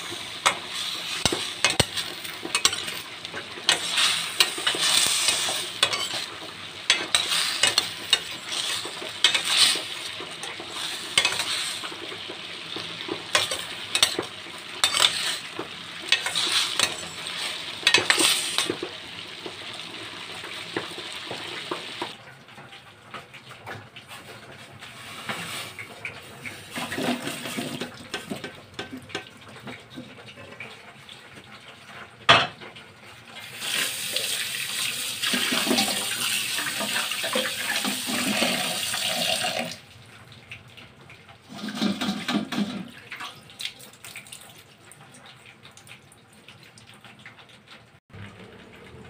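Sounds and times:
tap water splashing on vegetables: 0:42.2 - 0:47.5.

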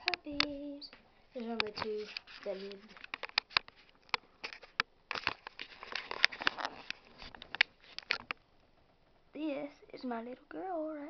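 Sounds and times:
phone handling rustling: 0:01.4 - 0:08.4.

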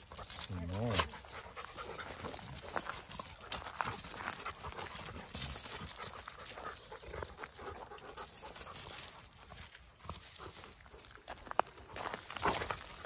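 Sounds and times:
dogs panting: 0:00.0 - 0:13.0
paws scuffling on gravel: 0:00.0 - 0:13.0.

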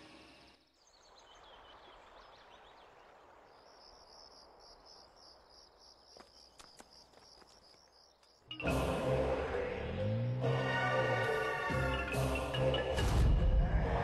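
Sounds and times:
insects chirping: 0:00.0 - 0:09.2.

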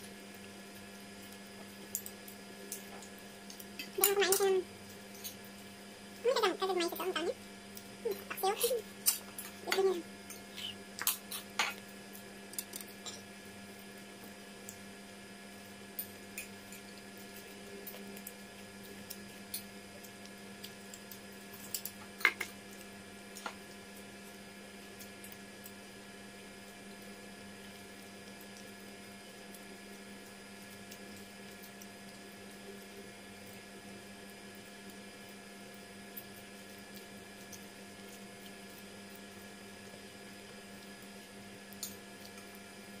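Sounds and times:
steady low hum: 0:00.0 - 0:43.0
mouth sounds of eating: 0:03.9 - 0:04.7, 0:08.0 - 0:11.8.

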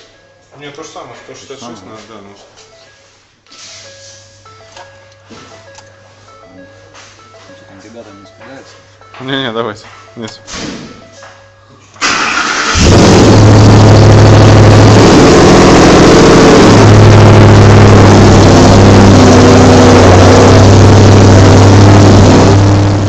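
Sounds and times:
truck engine starting and revving: 0:12.0 - 0:23.0.

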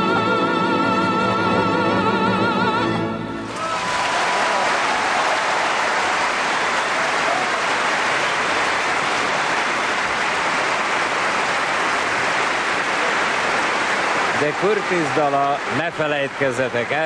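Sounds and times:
audience applause: 0:03.4 - 0:17.0.

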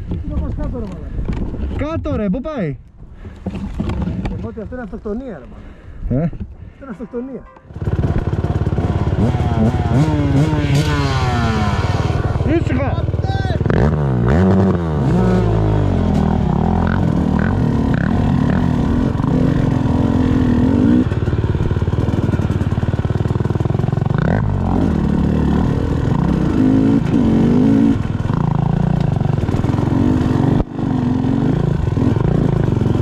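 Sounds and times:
motorcycle engine revving: 0:07.7 - 0:33.0.

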